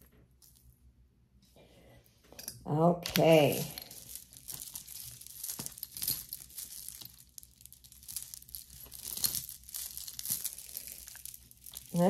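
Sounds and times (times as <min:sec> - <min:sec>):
packaging crinkling: 0:03.1 - 0:12.0.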